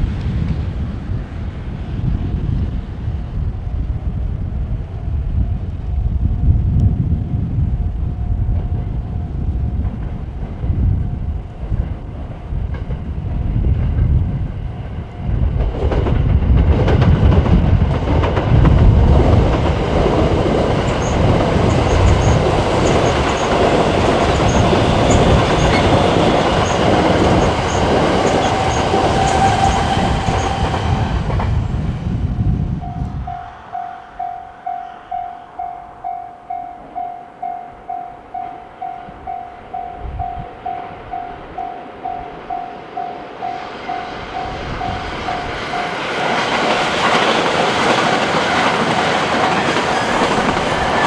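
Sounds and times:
train rumbling past: 0:00.0 - 0:51.0
crossing warning bell: 0:04.8 - 0:12.2, 0:14.3 - 0:15.7, 0:20.2 - 0:30.8, 0:32.4 - 0:51.0
wheels clicking over rail joints: 0:15.5 - 0:31.6.

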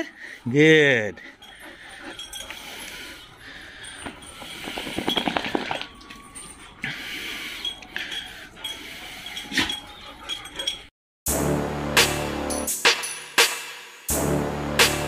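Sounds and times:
dog claws clicking on tiles: 0:04.0 - 0:06.0
electronic music: 0:11.3 - 0:13.0, 0:14.1 - 0:15.0.

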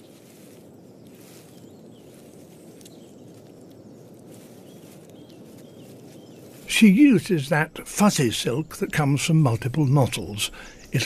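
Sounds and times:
low rumble and hiss: 0:05.8 - 0:11.0.

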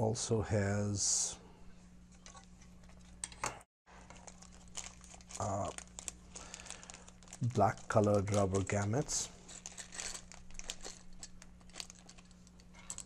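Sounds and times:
low electrical hum: 0:00.0 - 0:13.0
plastic bag crinkling: 0:03.9 - 0:13.0.

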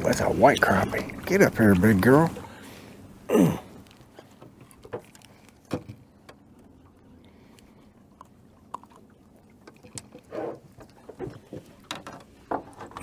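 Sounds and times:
low steady background noise: 0:00.0 - 0:13.0
faint knocks and clicks: 0:10.8 - 0:13.0.

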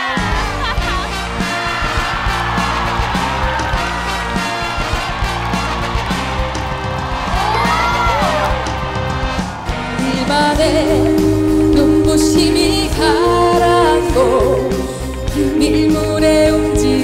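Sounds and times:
instrumental accompaniment: 0:00.0 - 0:17.0
woman singing pop song: 0:09.9 - 0:17.0.

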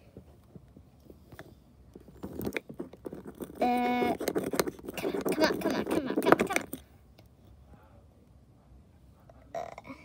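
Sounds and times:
plastic toys knocking and scraping: 0:00.0 - 0:06.9.

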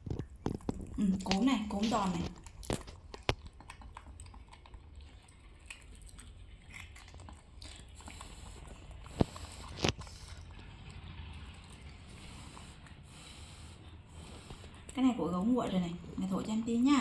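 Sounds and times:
small crackles: 0:00.0 - 0:12.6
crunching and chewing: 0:00.0 - 0:17.0.

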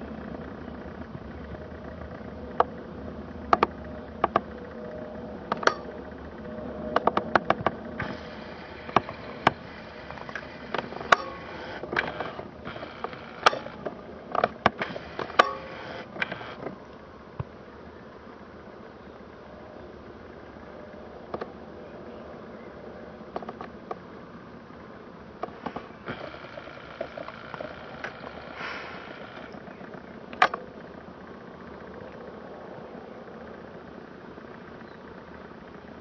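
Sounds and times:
distant engine hum: 0:00.0 - 0:36.0
faint steady tone: 0:00.0 - 0:36.0
sharp clicks and ticks: 0:03.4 - 0:04.7, 0:06.9 - 0:16.7.

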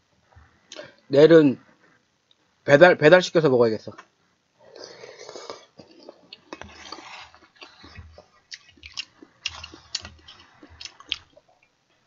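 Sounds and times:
chewing: 0:04.7 - 0:11.7.

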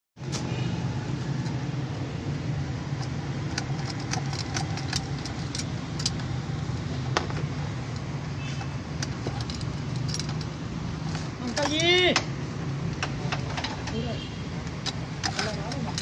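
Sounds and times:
keys jingling in ignition lock: 0:03.0 - 0:06.4, 0:08.9 - 0:10.6, 0:14.8 - 0:16.0.

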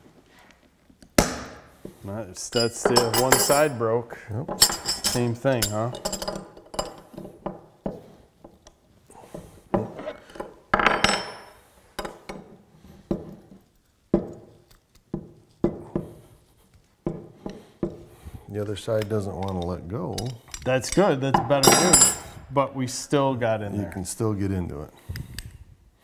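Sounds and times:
wrenches clinking against padlock: 0:02.4 - 0:03.8, 0:04.5 - 0:07.4, 0:18.9 - 0:22.4.

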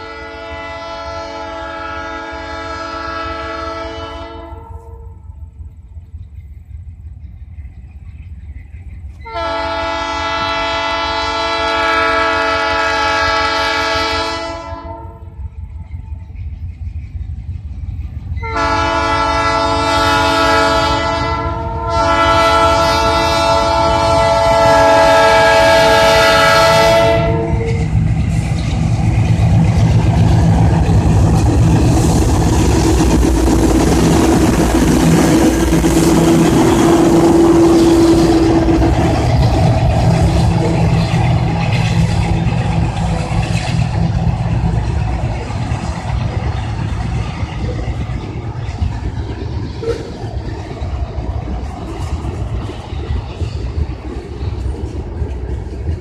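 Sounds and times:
train air horn blasts: 0:00.0 - 0:05.4, 0:09.2 - 0:15.4, 0:18.4 - 0:28.0, 0:33.8 - 0:44.1, 0:49.8 - 0:50.2
diesel locomotive engines: 0:00.0 - 0:56.0
train wheels on rails: 0:00.0 - 0:56.0.

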